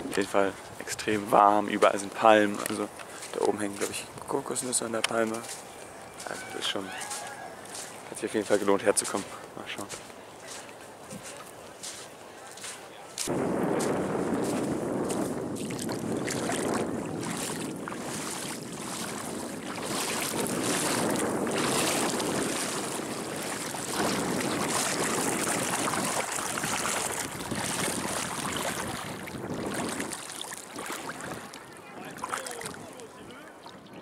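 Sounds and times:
water splashing around wading feet: 0:01.9 - 0:04.0, 0:04.6 - 0:33.9
wind on microphone: 0:13.2 - 0:34.0.

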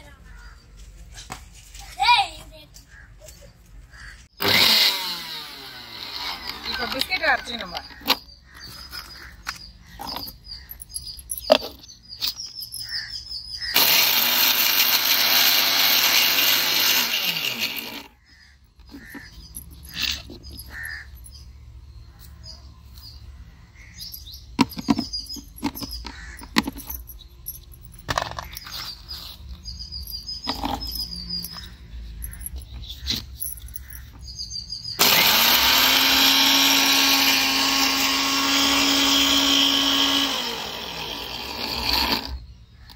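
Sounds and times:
birds chirping: 0:00.0 - 0:42.9
mixer grinder grinding: 0:04.4 - 0:08.6, 0:13.6 - 0:18.3, 0:35.0 - 0:42.9.

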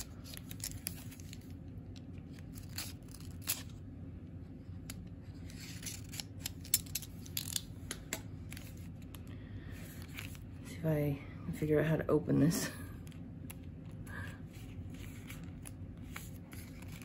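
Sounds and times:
cardboard packet handled: 0:00.0 - 0:03.8.

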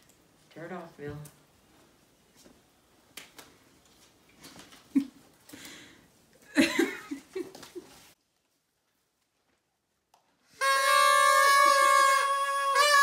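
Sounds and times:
paper and plastic rustling: 0:02.3 - 0:05.0, 0:07.3 - 0:09.7.

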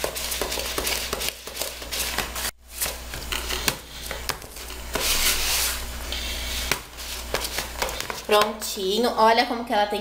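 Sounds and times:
spoon scraping batter in plastic bowl: 0:00.0 - 0:05.8.

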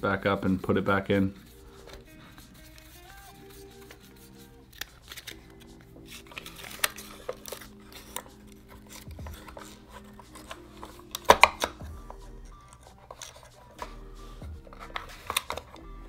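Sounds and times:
soft background music: 0:00.0 - 0:16.0
wooden box clicks and taps: 0:10.4 - 0:11.8.

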